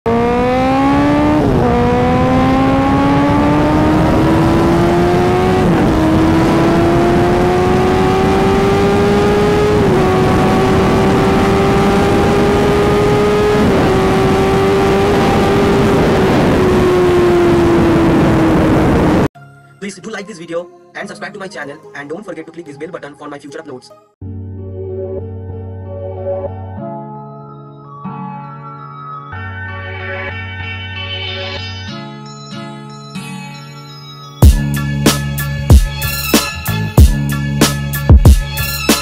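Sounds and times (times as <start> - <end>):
motorcycle engine at full throttle: 0.1 - 19.3.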